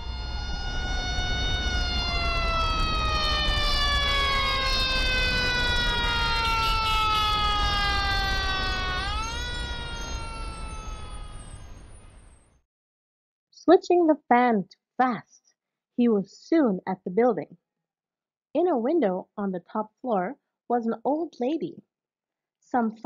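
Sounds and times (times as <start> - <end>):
fire engine siren wailing: 0.0 - 12.5
low rumble: 0.0 - 12.5.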